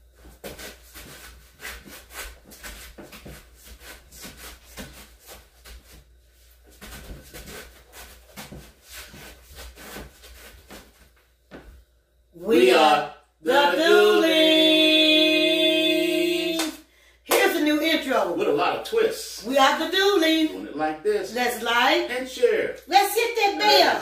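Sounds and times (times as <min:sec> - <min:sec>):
hand clapping: 0:16.5 - 0:17.6.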